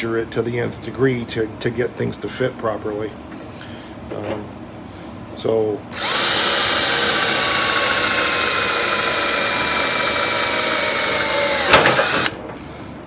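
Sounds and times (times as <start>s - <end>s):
cordless drill boring through steel: 6.0s - 12.4s.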